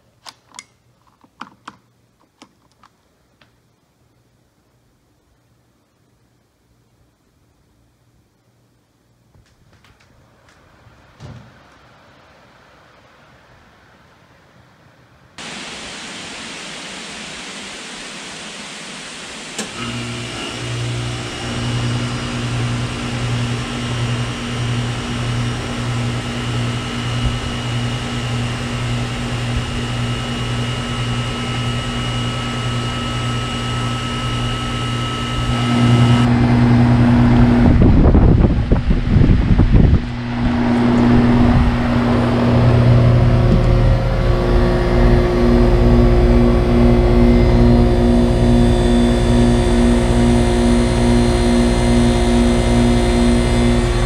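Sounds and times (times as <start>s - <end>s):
compressor and fan humming: 15.4s - 54.0s
heat pump click: 19.2s - 21.0s
wind buffeting microphone: 36.9s - 44.6s.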